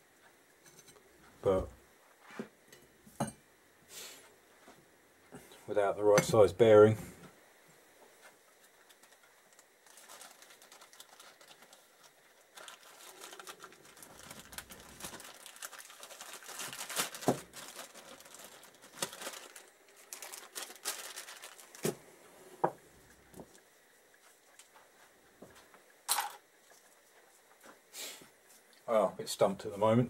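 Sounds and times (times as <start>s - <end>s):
plastic bag crinkling: 8.6s - 22.0s.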